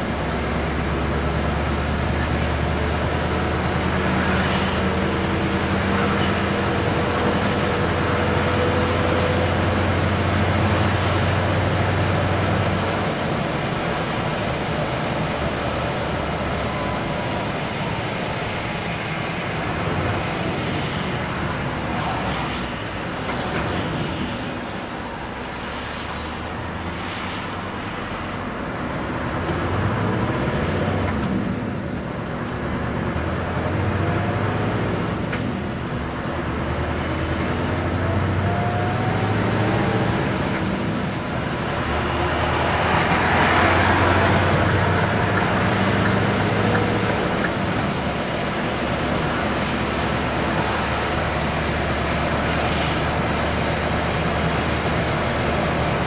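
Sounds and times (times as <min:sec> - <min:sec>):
low engine drone: 0:00.0 - 0:26.7, 0:29.3 - 0:56.0
tyre and road noise: 0:00.0 - 0:56.0.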